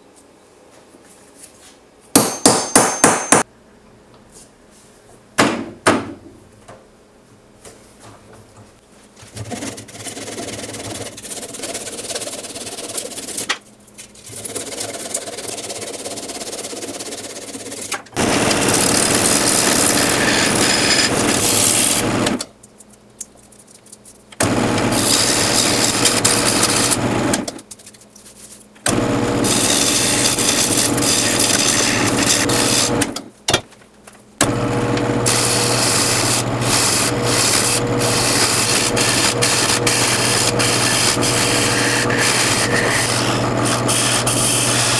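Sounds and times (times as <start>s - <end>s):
gouge scraping wood on lathe: 9.4s - 13.5s, 14.3s - 22.4s, 24.4s - 27.4s, 28.9s - 33.1s, 34.6s - 44.9s.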